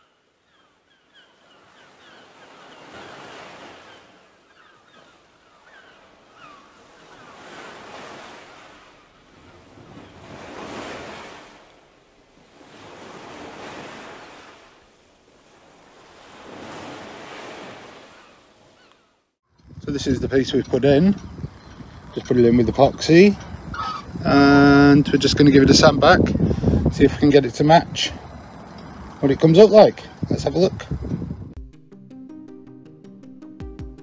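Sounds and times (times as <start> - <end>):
faint bird chirps: 3.8 - 7.5
wind gusting over microphone: 6.1 - 11.7, 19.5 - 31.6.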